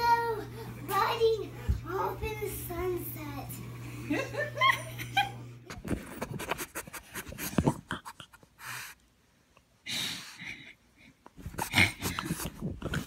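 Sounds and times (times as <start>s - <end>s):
dog breathing noisily: 6.8s - 9.0s.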